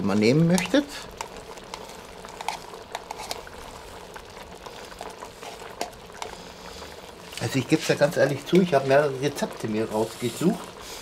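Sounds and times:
sauce bubbling in a pot: 0.0 - 11.0
small scattered pops: 0.2 - 6.5.

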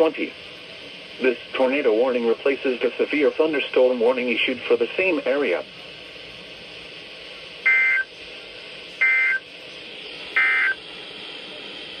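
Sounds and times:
buzzy two-tone data bursts: 9.0 - 9.4, 10.3 - 10.8.

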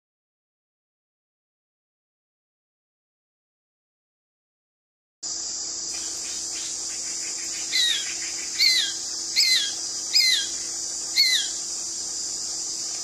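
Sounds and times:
steady high hiss: 5.2 - 13.0
bird calling downward notes: 6.0 - 11.6.

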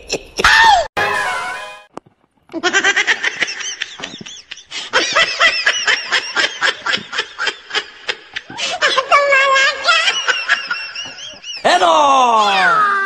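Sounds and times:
person laughing hard: 2.6 - 9.1.

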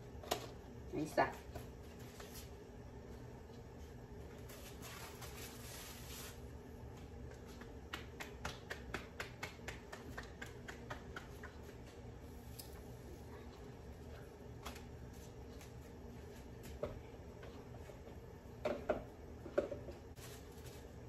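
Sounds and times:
plastic sheet rustling: 4.4 - 6.4
hands patting tortilla: 4.5 - 12.1.

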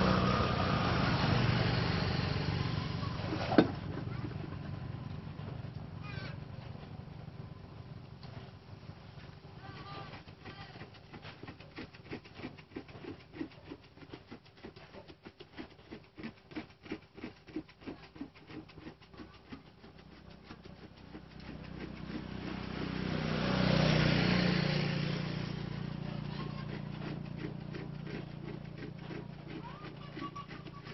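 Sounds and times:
vehicle engine: 0.0 - 30.9
abrasive strip scraping rubber: 9.6 - 30.9.

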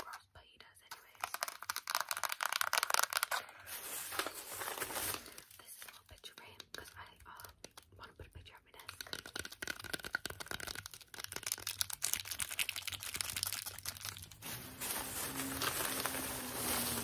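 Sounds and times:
plastic wrapping crinkling: 1.2 - 6.0, 9.0 - 17.0.

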